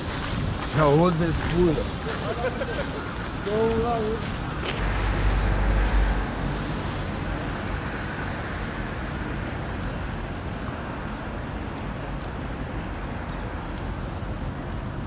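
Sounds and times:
distant road traffic hum: 0.0s - 15.0s.

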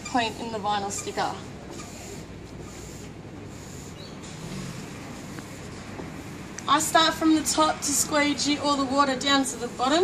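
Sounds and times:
street traffic: 0.0s - 10.0s.

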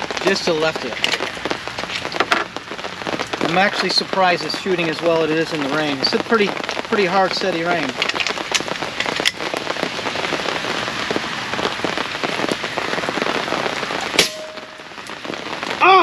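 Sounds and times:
heavy rain on a tent: 0.0s - 16.0s
air rifle shot: 14.2s - 14.6s.

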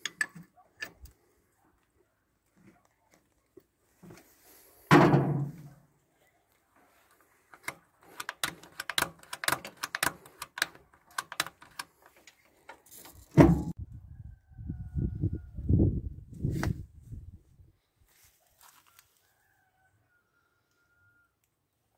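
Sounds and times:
heavy thumps: 4.9s - 5.7s, 13.4s - 13.8s
quick sharp clicks and knocks: 7.6s - 12.4s.

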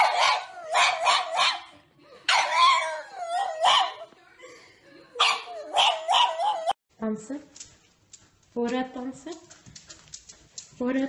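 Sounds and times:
dog barking and howling: 0.0s - 1.7s, 2.3s - 4.0s, 5.2s - 6.8s.

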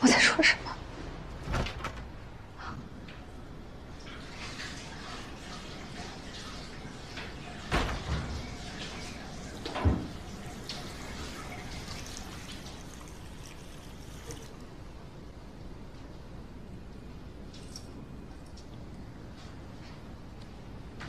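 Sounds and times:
front door shutting thud: 1.3s - 2.4s.

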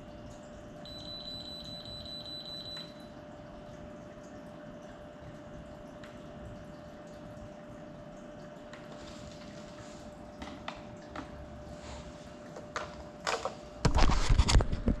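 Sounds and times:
faint steady tone: 0.8s - 3.2s.

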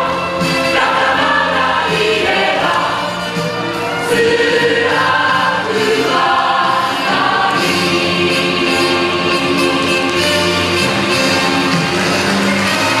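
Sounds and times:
instrumental accompaniment: 0.0s - 13.0s
cast singing in chorus: 3.9s - 9.8s.

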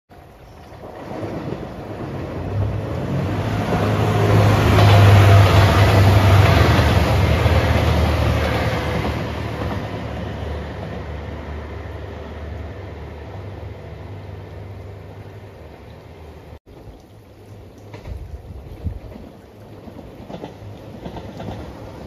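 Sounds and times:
diesel train engine drone: 0.2s - 16.6s
train wheels rushing on rails: 0.3s - 14.0s, 18.8s - 22.0s.

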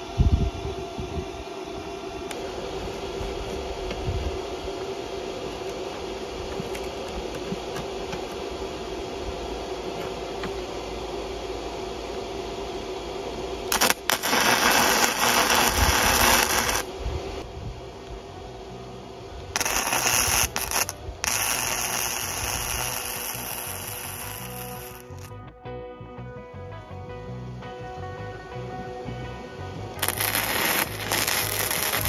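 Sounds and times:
steady background hum: 0.0s - 32.0s
welding arc crackling: 13.5s - 17.5s, 18.8s - 25.4s, 30.0s - 32.0s.

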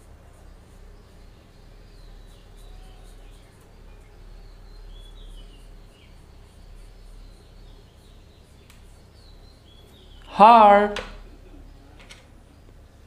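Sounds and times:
faint bird chirps: 0.0s - 10.4s
room noise: 0.0s - 13.0s
steady low hum: 0.0s - 13.0s.

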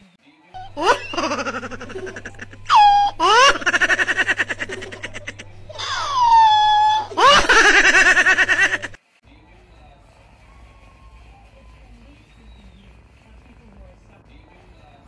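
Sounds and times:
faint steady hum: 0.6s - 9.0s
high-pitched giggling: 0.6s - 9.0s.

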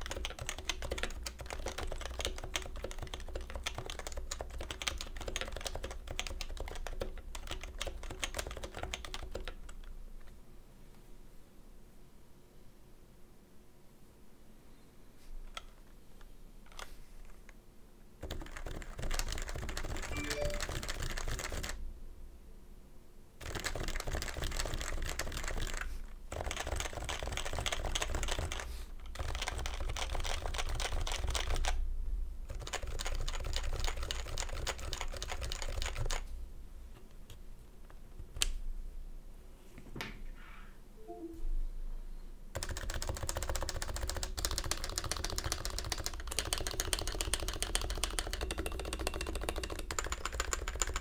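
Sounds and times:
typing on keyboard: 0.0s - 9.9s, 18.2s - 21.8s, 23.4s - 31.8s, 32.5s - 36.2s, 42.6s - 51.0s.

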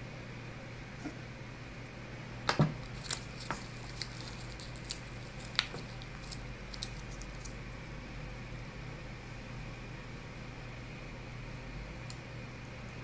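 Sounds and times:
steady low hum: 0.0s - 13.0s
candy bag crinkling: 2.8s - 7.7s.

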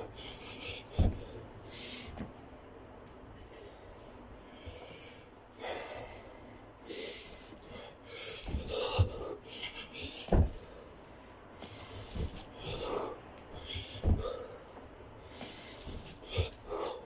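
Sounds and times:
man breathing hard: 0.0s - 2.3s, 3.4s - 17.0s
thuds on carpeted floor: 0.9s - 1.3s, 8.4s - 9.3s, 10.2s - 10.7s, 12.0s - 12.8s, 13.7s - 14.5s.

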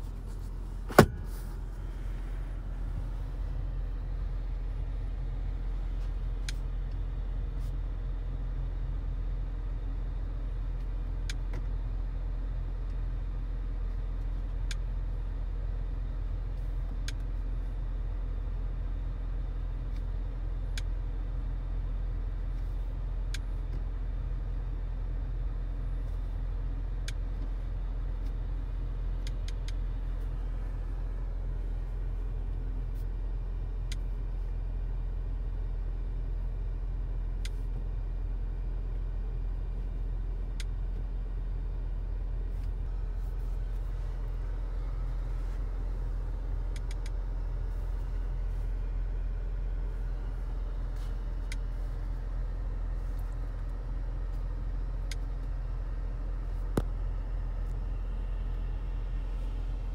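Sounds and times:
car engine running: 0.0s - 59.9s.

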